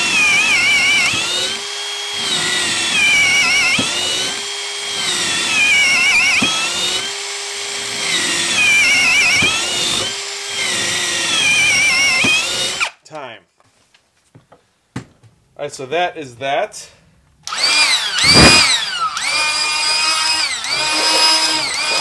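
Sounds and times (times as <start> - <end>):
cordless drill boring through wood: 0.0 - 13.0, 17.4 - 22.0.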